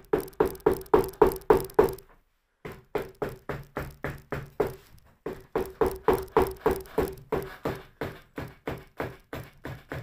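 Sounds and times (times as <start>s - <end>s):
mallet tapping rapidly: 0.0s - 2.0s, 5.4s - 10.0s.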